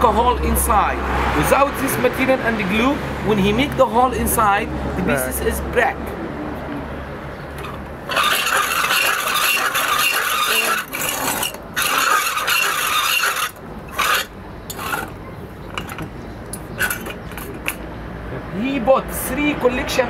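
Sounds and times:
drill scraping stone: 7.6s - 15.2s, 16.8s - 17.6s.

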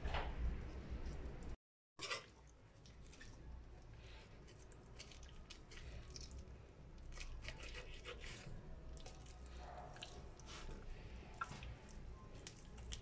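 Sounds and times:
knife cutting raw chicken: 7.1s - 8.5s.

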